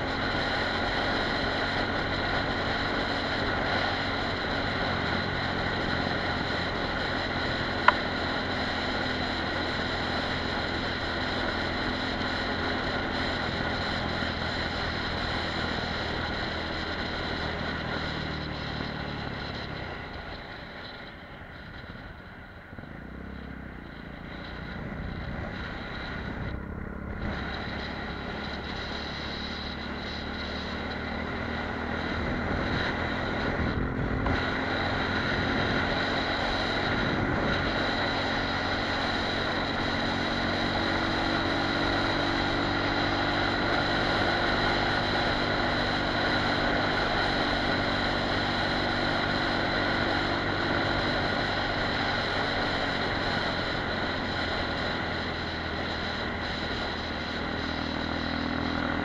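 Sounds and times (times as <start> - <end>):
motorcycle engine running: 0.0 - 59.0
wind rushing over microphone: 31.4 - 59.0.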